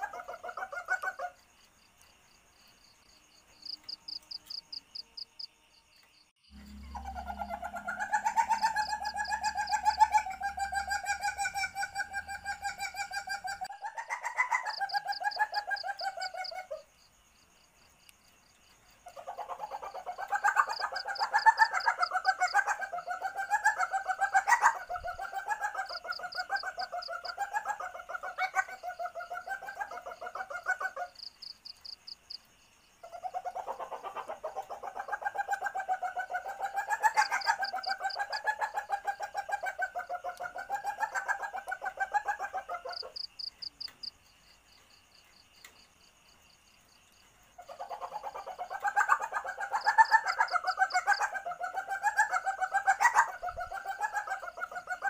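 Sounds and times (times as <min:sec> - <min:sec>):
faint high pulsed trills: 0:06.5 - 0:12.7
civet chattering call: 0:06.6 - 0:13.7.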